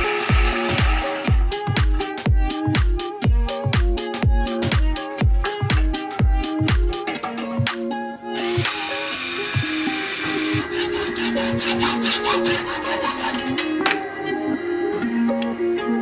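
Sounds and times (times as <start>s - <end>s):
electric drill boring through metal: 0.0s - 1.7s, 8.4s - 13.8s
background music with beat: 0.0s - 16.0s.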